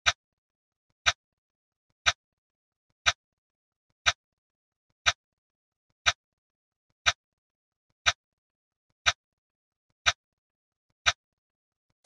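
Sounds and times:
timer ticks: 0.0s - 0.2s, 1.0s - 1.2s, 2.0s - 2.2s, 3.0s - 3.2s, 4.0s - 4.2s, 5.0s - 5.2s, 6.0s - 6.2s, 7.0s - 7.3s, 8.0s - 8.3s, 8.9s - 9.2s, 10.0s - 10.2s.

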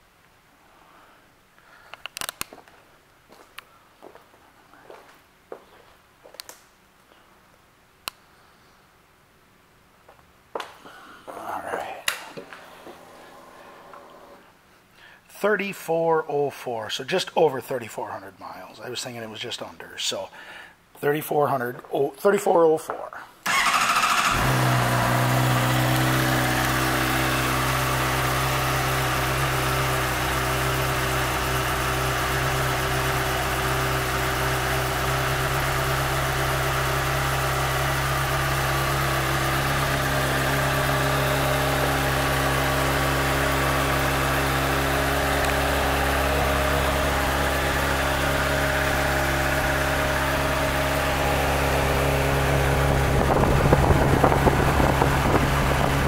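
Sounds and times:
motorcycle engine idling: 23.5s - 56.0s.

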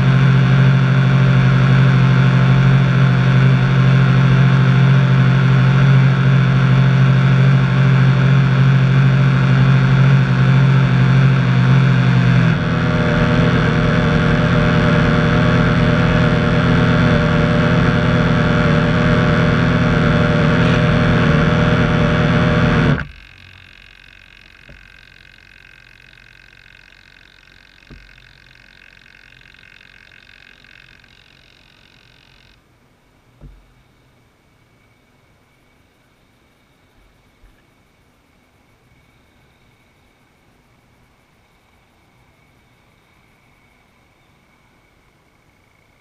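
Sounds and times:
electric boat motors running: 0.0s - 32.6s
faint hum: 0.0s - 46.0s.

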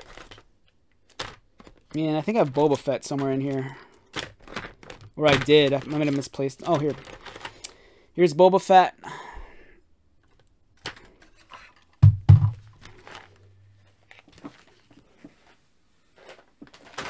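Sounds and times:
plastic figures clattering: 0.0s - 7.7s, 10.2s - 15.6s, 16.2s - 17.0s
dull thump: 12.0s - 12.7s.

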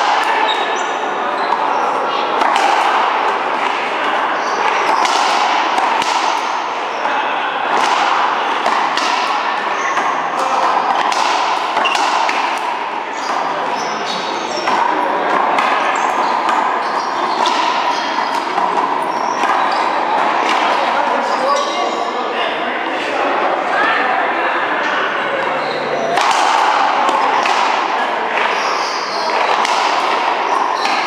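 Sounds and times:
racquetball hits off racquet and wall: 1.5s - 6.8s, 7.6s - 21.1s, 26.1s - 31.0s.

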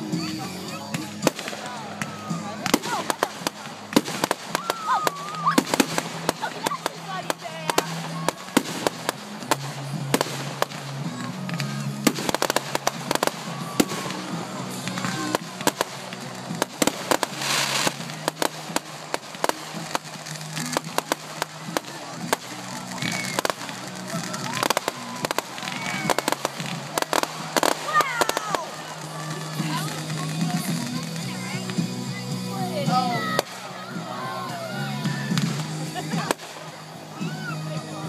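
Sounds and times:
fireworks bangs and crackles: 0.0s - 38.0s
fireworks hissing burst: 0.0s - 38.0s.

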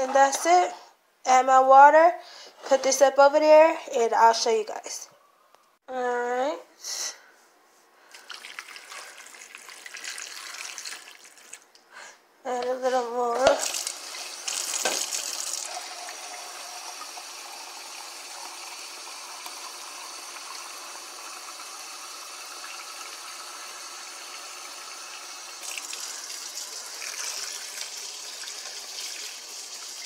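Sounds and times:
faucet running into sink: 8.2s - 11.6s, 13.5s - 30.0s.

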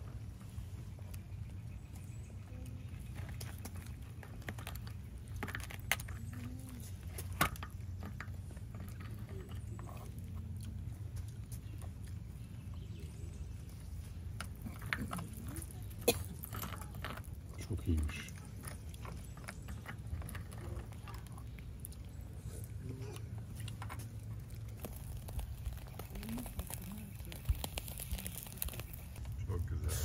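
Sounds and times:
spoons scraping marrow bones: 14.4s - 30.0s.

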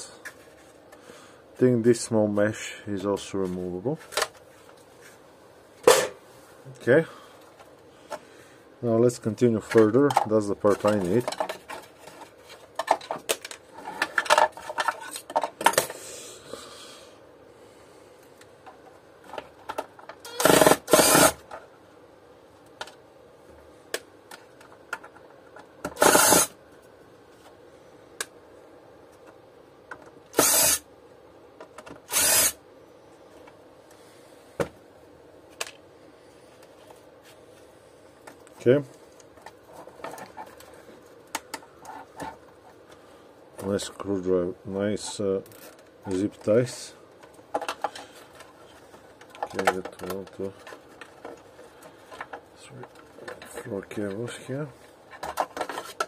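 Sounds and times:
plastic parts clicking and rattling: 9.6s - 15.9s, 47.2s - 54.2s, 55.1s - 56.0s.

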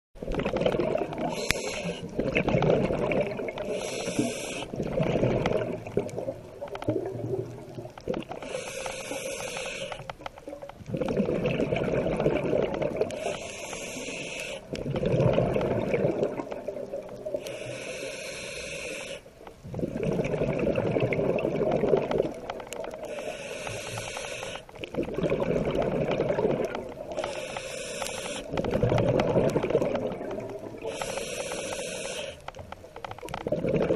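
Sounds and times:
bubbling exhale: 0.3s - 10.0s, 10.9s - 32.4s, 33.4s - 33.9s
hissing regulator inhale: 1.2s - 2.1s, 3.5s - 4.8s, 8.4s - 10.1s, 13.1s - 14.8s, 17.3s - 19.3s, 23.0s - 24.8s, 27.1s - 28.7s, 30.8s - 32.6s.

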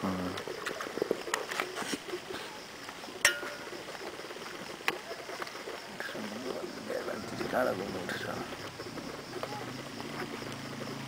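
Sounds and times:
sharp ringing clink: 3.2s - 3.7s.

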